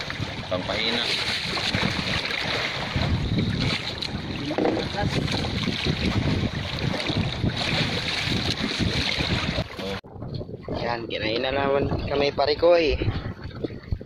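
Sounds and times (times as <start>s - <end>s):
sea water washing around boat: 0.0s - 10.1s
wind buffeting microphone: 0.0s - 14.0s.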